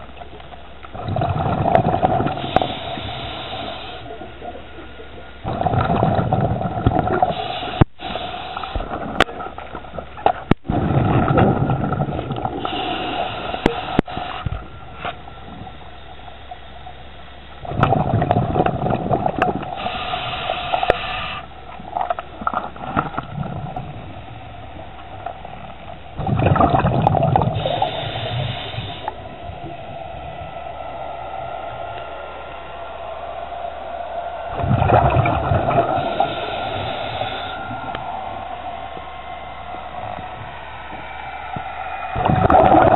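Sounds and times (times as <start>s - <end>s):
bubbling exhalations underwater: 0.9s - 13.9s, 17.6s - 20.2s, 24.8s - 30.6s, 34.5s - 38.0s, 42.2s - 42.9s
regulator hiss: 2.2s - 5.2s, 7.2s - 9.8s, 12.5s - 17.6s, 19.6s - 21.9s, 27.3s - 34.6s, 35.4s - 42.4s.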